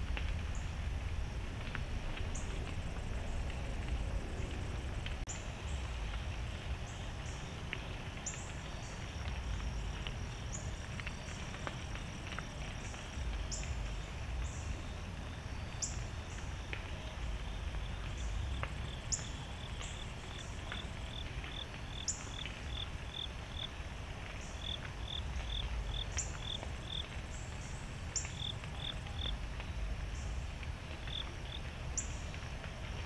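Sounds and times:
steady low rumble: 0:00.0 - 0:19.0
insects chirping: 0:08.2 - 0:23.7, 0:24.4 - 0:30.3.

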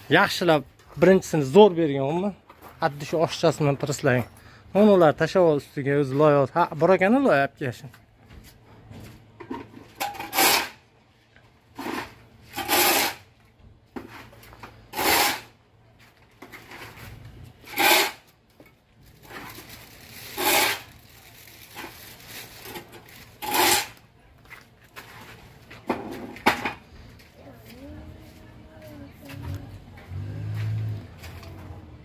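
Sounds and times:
shovel scraping in metal trough: 0:09.6 - 0:10.8, 0:11.8 - 0:13.3, 0:14.9 - 0:15.5, 0:16.6 - 0:18.3, 0:20.3 - 0:20.9, 0:23.4 - 0:24.0.

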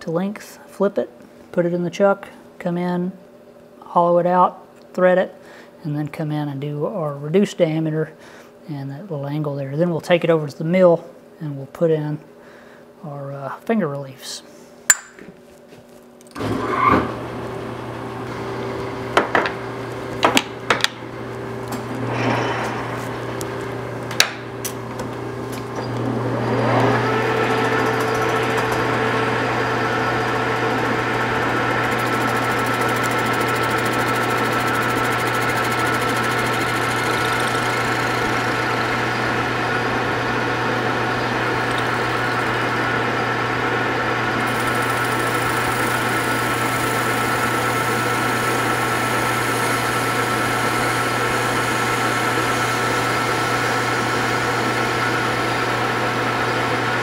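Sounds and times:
metal lathe humming: 0:25.8 - 0:57.0.

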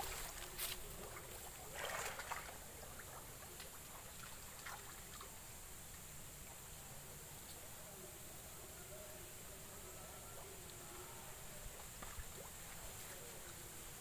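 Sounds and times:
water splashing: 0:00.0 - 0:06.0
faint water drips: 0:00.0 - 0:14.0.

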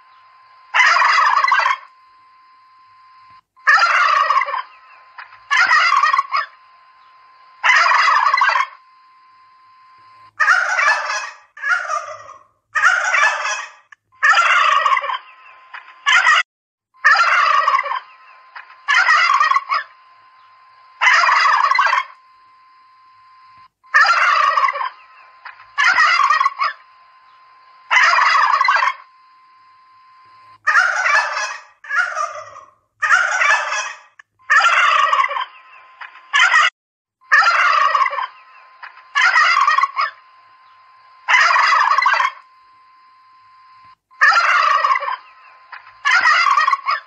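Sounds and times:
turkeys gobbling: 0:00.7 - 0:01.9, 0:03.6 - 0:06.6, 0:07.6 - 0:08.8, 0:10.4 - 0:16.4, 0:17.0 - 0:20.0, 0:21.0 - 0:22.2, 0:23.9 - 0:26.8, 0:27.9 - 0:29.1, 0:30.6 - 0:36.7, 0:37.3 - 0:40.2, 0:41.3 - 0:42.4, 0:44.2 - 0:47.0.

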